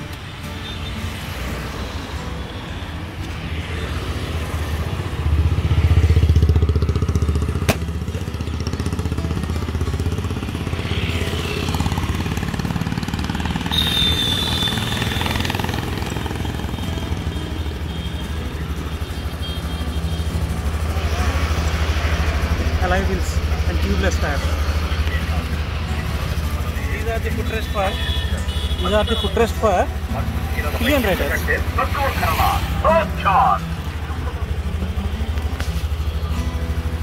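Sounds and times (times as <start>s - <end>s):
scooter engine idling: 11.6s - 30.6s, 32.8s - 37.0s.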